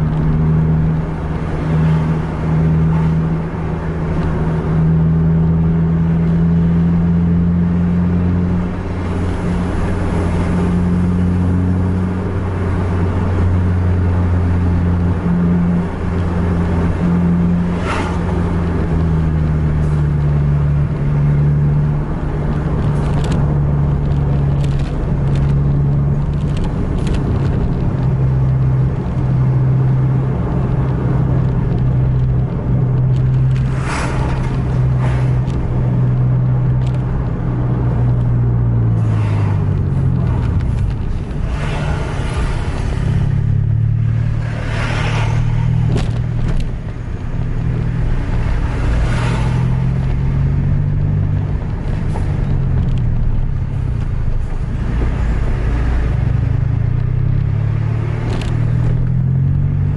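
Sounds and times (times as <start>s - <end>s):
bus diesel engine drone: 0.0s - 59.9s.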